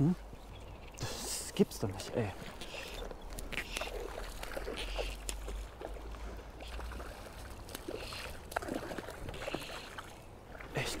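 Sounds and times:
stream water splashing and trickling: 0.0 - 11.0.

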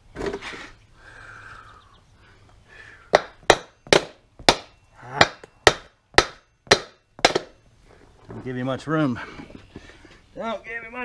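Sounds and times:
heavy hammer striking metal: 3.1 - 7.6.

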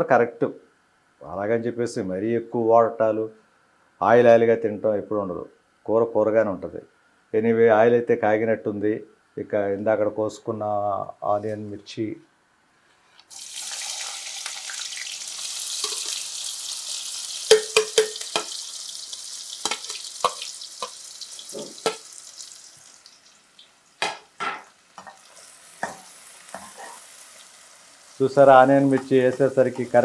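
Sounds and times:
food sizzling in hot oil: 13.3 - 30.0
spatula scraping a pan: 25.0 - 27.2.

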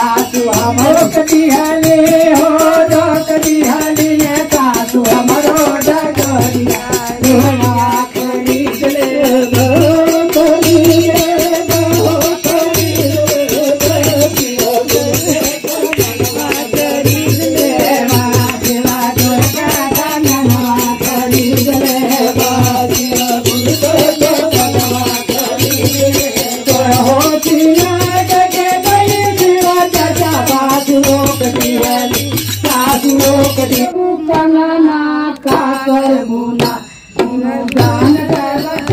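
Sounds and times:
dholak drum beat: 0.0 - 38.9
jingling percussion: 0.0 - 38.9
person singing: 0.0 - 38.9
hand clapping: 15.3 - 16.7, 37.6 - 38.9.

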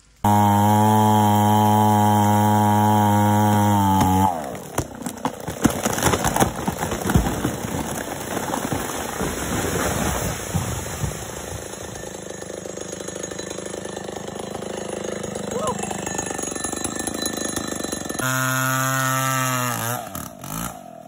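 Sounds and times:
chainsaw running: 0.1 - 8.3, 11.0 - 21.0
wood cracking and snapping: 3.4 - 11.9.

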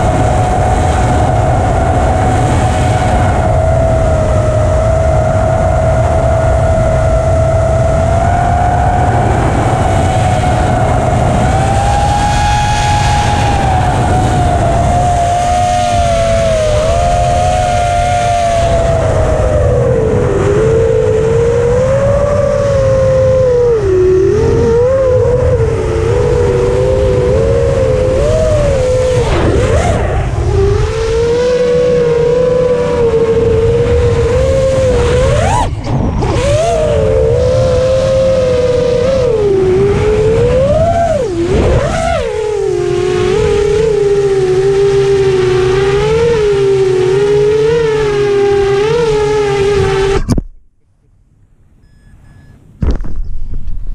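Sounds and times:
model aircraft motors whining: 0.0 - 50.4.

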